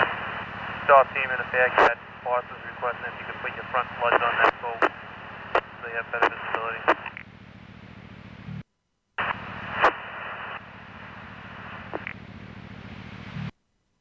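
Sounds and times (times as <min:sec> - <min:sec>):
radio static hissing: 0:00.0 - 0:07.2, 0:09.2 - 0:13.6
radio click and crackle: 0:00.0 - 0:07.3, 0:09.2 - 0:10.6, 0:11.5 - 0:12.2
low hum: 0:00.0 - 0:13.6.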